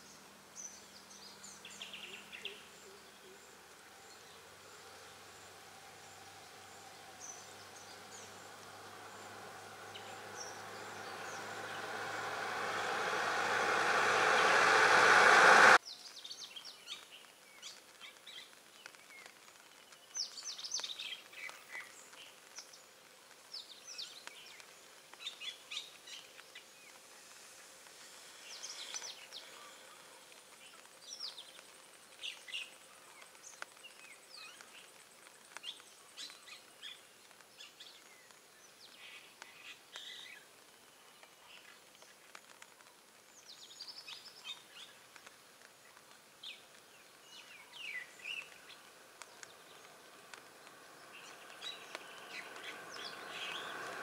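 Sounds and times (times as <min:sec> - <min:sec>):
birds chirping: 0:05.4 - 0:15.8, 0:46.4 - 0:54.0
truck engine and tyres: 0:05.6 - 0:15.8, 0:48.8 - 0:54.0.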